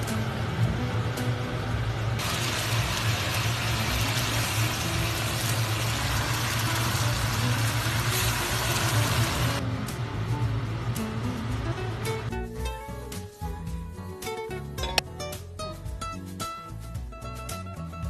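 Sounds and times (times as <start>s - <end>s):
sauce sizzling and bubbling in wok: 0.0s - 12.4s.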